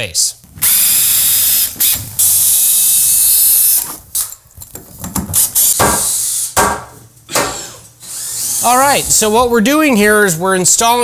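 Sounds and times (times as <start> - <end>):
cordless drill running: 8.0 - 9.1.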